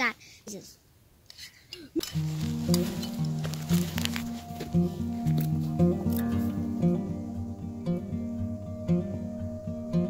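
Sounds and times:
background music with low notes: 0:02.1 - 0:10.0.

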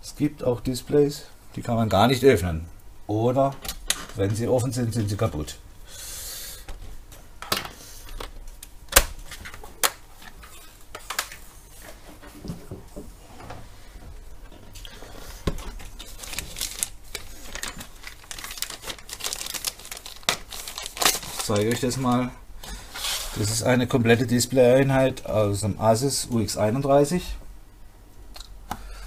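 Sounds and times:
plastic bag crinkling: 0:15.6 - 0:22.3.

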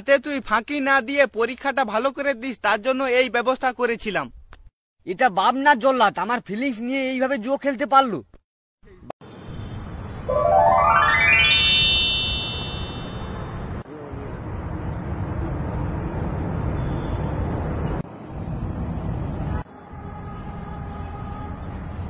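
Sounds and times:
rising whistle: 0:10.3 - 0:13.6.

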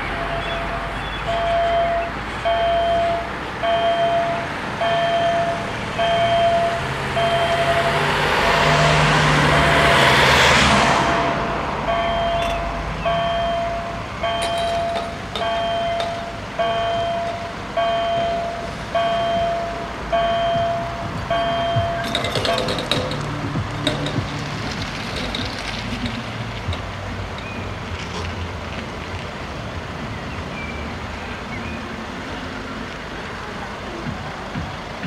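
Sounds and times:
level crossing warning bells: 0:00.0 - 0:10.1, 0:11.0 - 0:24.3
road traffic: 0:00.0 - 0:35.0.

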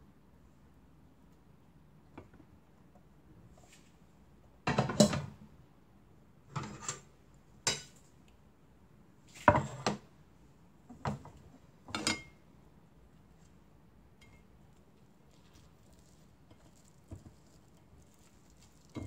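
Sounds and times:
dishes and utensils clattering: 0:11.9 - 0:12.4.

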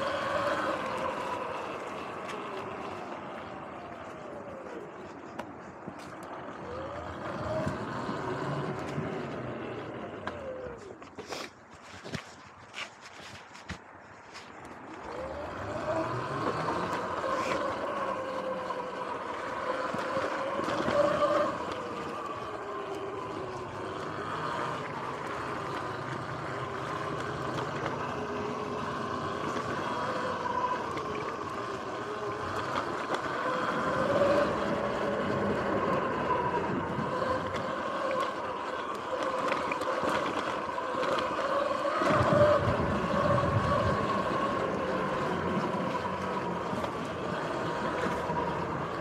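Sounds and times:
electric motorbike whine: 0:00.0 - 0:49.0
wind noise: 0:41.9 - 0:45.6.

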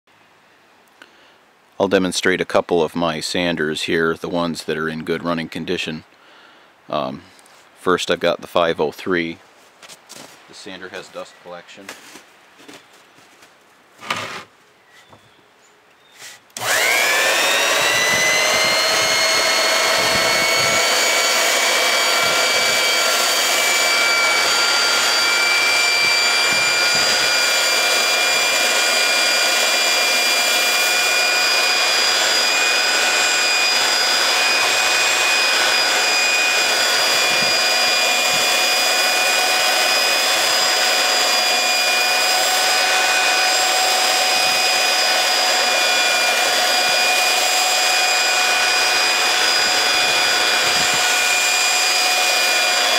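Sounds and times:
belt sander whining on wood: 0:14.0 - 0:14.5, 0:16.2 - 0:52.9.

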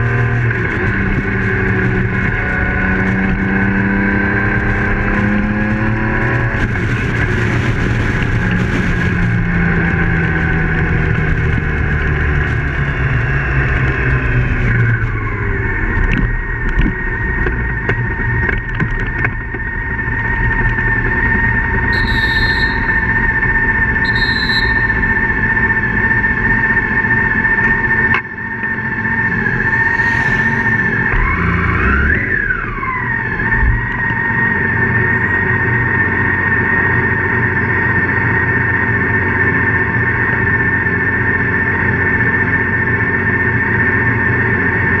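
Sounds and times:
wind noise: 0:00.0 - 0:13.1
motorcycle engine running: 0:00.0 - 0:45.0
short high beeps: 0:21.9 - 0:23.2, 0:24.0 - 0:25.2.

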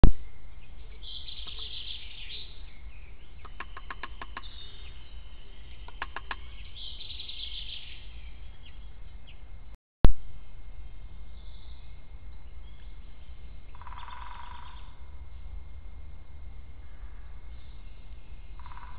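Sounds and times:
songbirds singing trills: 0:00.0 - 0:09.7, 0:10.4 - 0:15.8, 0:16.5 - 0:18.9
low steady rumble: 0:00.0 - 0:18.9
sharp clicks: 0:03.4 - 0:04.5, 0:05.9 - 0:06.5.

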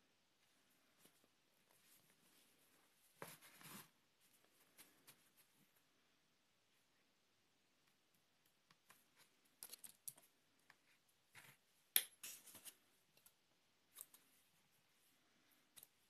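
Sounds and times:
hands rustling yarn: 0:00.0 - 0:07.0.

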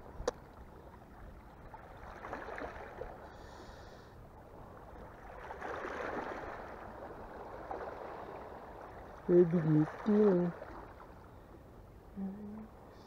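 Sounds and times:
small waves washing against rocks: 0:05.1 - 0:11.2.

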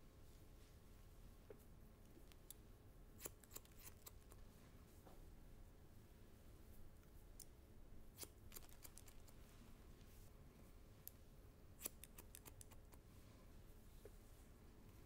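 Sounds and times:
shears snipping hair: 0:03.2 - 0:04.2, 0:08.2 - 0:09.3, 0:11.8 - 0:13.0.

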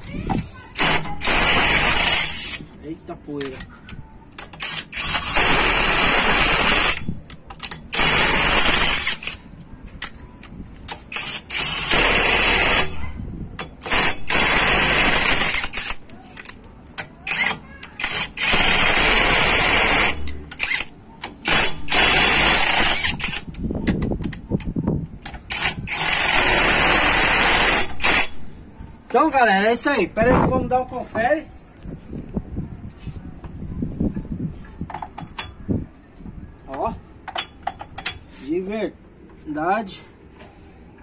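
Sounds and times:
impact wrench running: 0:00.8 - 0:02.6, 0:04.6 - 0:09.4, 0:11.1 - 0:13.0, 0:13.8 - 0:16.1, 0:17.3 - 0:23.5, 0:25.5 - 0:28.4.

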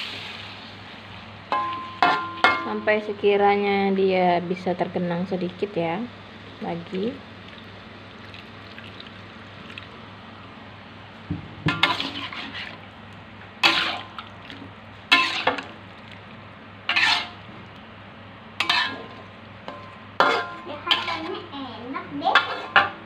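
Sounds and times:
steady low hum: 0:00.6 - 0:22.2
liquid sloshing: 0:07.4 - 0:10.0, 0:13.6 - 0:16.4
metal spatula scraping a pan: 0:11.7 - 0:12.8, 0:13.6 - 0:14.1, 0:15.1 - 0:15.7, 0:16.9 - 0:17.4, 0:18.6 - 0:21.5, 0:22.3 - 0:22.9.

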